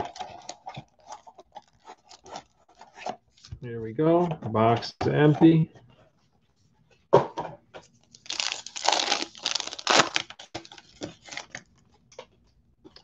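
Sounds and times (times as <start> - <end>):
foil wrapper tearing and crinkling: 8.1 - 11.7.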